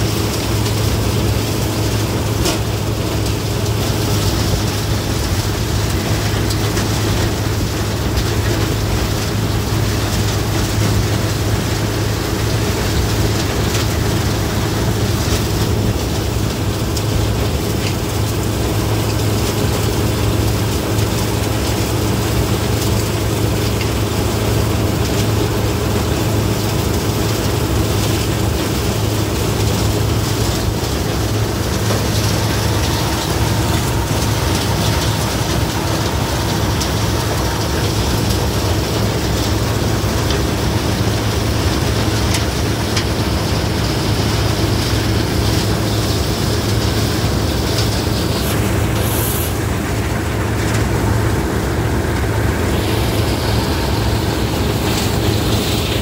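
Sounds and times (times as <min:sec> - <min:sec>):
steady low hum: 0:26.9 - 0:41.0
even hiss: 0:48.1 - 0:50.2.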